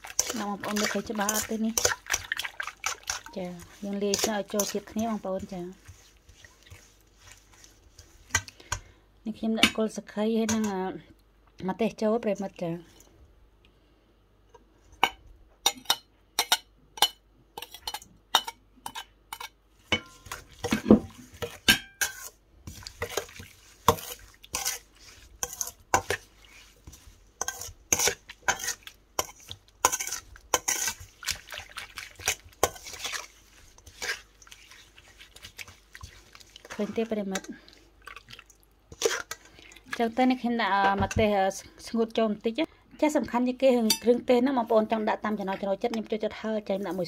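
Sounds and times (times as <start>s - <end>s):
spoon clinking in a metal bowl: 15.0s - 20.8s, 21.4s - 22.3s, 43.8s - 44.2s.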